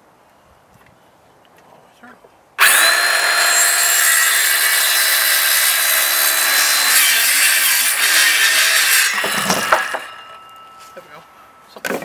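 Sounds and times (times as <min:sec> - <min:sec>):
circular saw cutting wood: 0:02.6 - 0:11.2.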